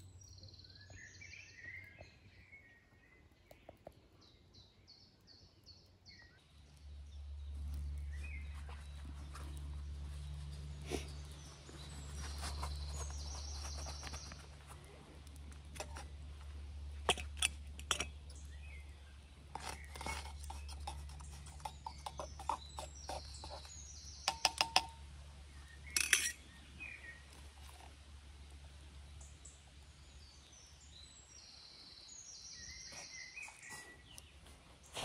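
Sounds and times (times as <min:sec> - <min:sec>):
metal pot and lid clinking: 0:15.8 - 0:16.1, 0:17.0 - 0:18.2, 0:19.5 - 0:23.7, 0:24.3 - 0:25.0, 0:25.9 - 0:26.4.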